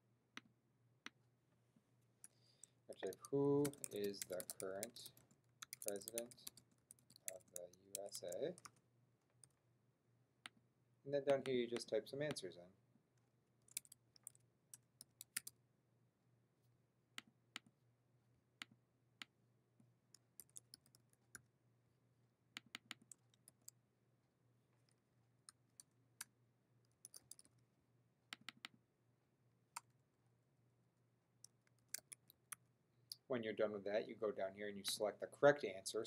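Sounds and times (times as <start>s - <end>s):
computer keyboard typing: 2.9s - 8.8s, 13.7s - 15.5s, 20.2s - 21.1s, 27.0s - 27.5s.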